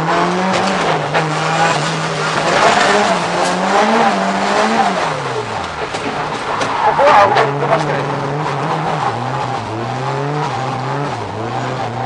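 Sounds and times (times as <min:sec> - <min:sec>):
car engine at high revs: 0:00.0 - 0:12.0
tyre and road noise: 0:00.0 - 0:12.0.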